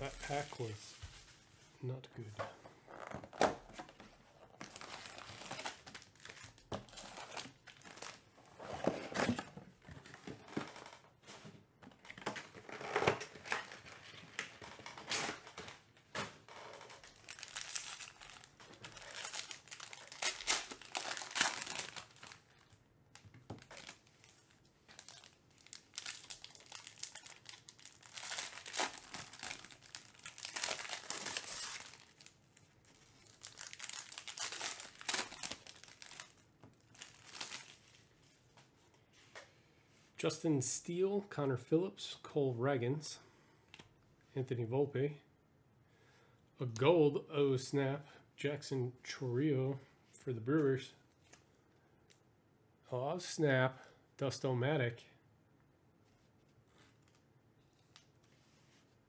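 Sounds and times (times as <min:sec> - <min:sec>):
foil wrappers tearing and crinkling: 0:16.9 - 0:22.4, 0:23.6 - 0:32.4, 0:33.2 - 0:37.9.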